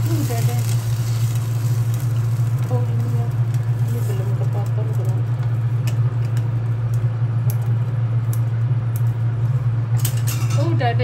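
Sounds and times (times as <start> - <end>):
kitchen appliance humming: 0.0 - 11.0.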